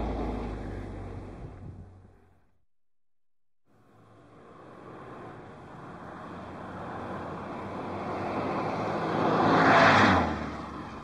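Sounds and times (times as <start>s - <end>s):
car passing by: 3.9s - 11.0s.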